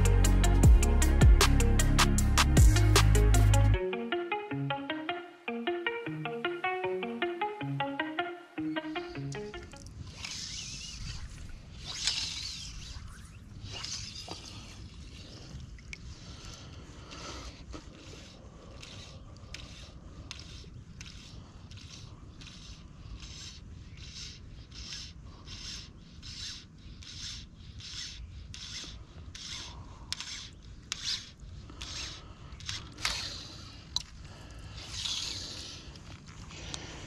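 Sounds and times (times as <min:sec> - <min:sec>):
fly line stripped by hand: 0:09.1 - 0:15.0.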